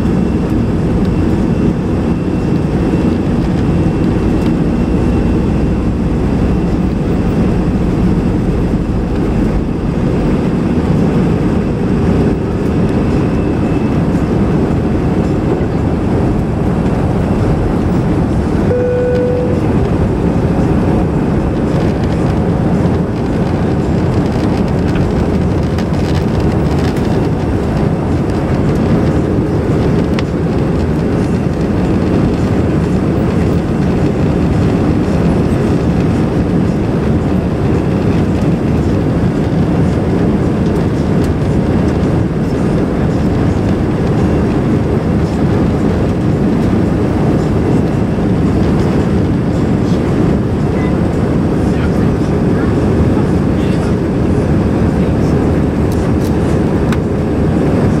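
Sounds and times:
jet engines and air rush: 0.0s - 58.0s
brief steady tone: 18.6s - 19.9s.

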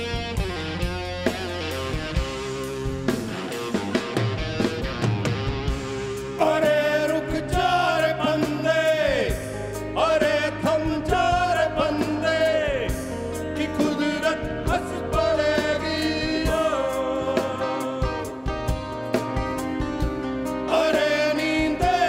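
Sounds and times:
bass guitar: 0.0s - 22.0s
drums: 0.0s - 22.0s
electric guitar: 0.0s - 22.0s
men singing long held notes: 6.3s - 18.6s, 20.5s - 22.0s.

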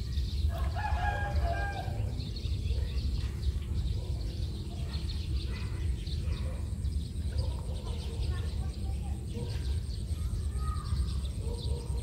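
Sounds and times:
small birds chirping: 0.0s - 12.0s
rooster crowing: 0.6s - 2.0s.

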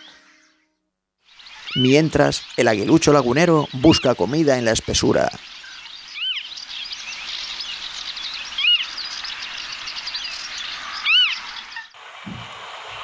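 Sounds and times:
loud clear bird call: 0.0s - 12.0s
birds chirping in chorus: 0.0s - 12.4s.

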